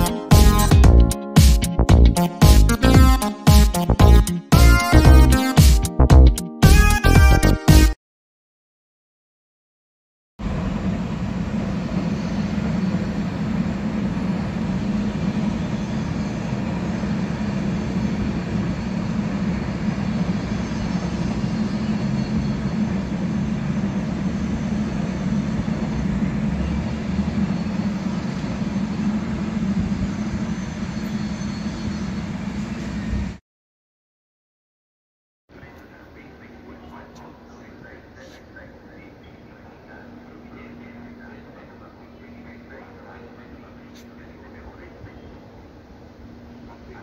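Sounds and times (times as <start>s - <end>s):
freight train rumbling: 0.0s - 1.1s, 10.4s - 33.4s, 35.5s - 47.0s.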